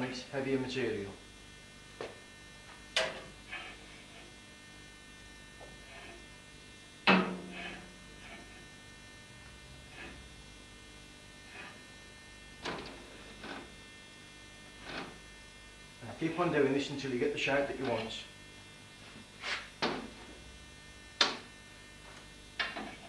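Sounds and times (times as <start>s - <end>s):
steady electrical hum: 0.0s - 23.0s
steel bar clanking against metal: 7.1s - 7.8s.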